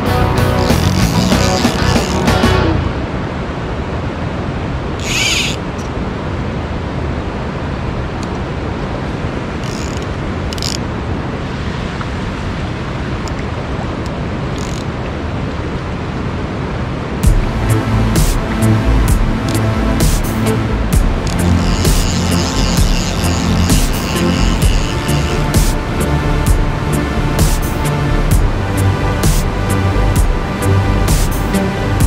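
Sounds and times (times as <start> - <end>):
flowing river water: 0.0 - 32.0
brief high hissing: 5.0 - 5.6.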